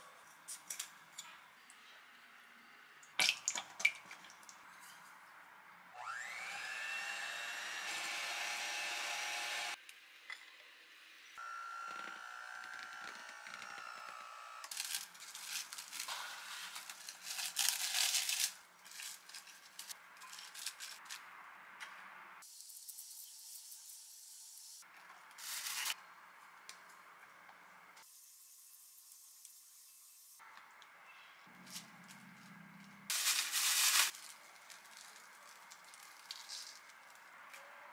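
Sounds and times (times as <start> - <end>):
electric hand mixer whirring: 6.0 - 9.8
cling wrap crinkling: 14.7 - 21.2, 25.4 - 26.0, 33.1 - 37.6
handling sounds: 14.7 - 21.2, 33.1 - 37.7.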